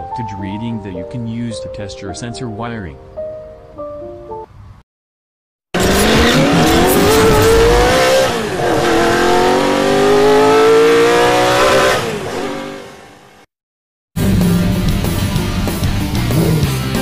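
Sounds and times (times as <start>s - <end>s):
sports car engine revving: 5.8s - 13.4s.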